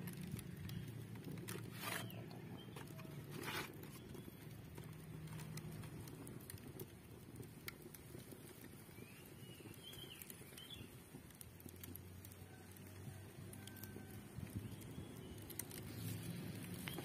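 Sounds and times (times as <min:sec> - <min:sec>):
wood fire crackling: 0:00.0 - 0:17.0
bird chirping: 0:09.0 - 0:10.9.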